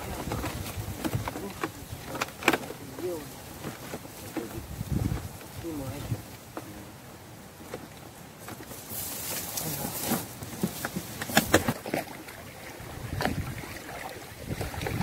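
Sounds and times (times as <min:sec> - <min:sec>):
wading through shallow water: 0:11.1 - 0:15.0.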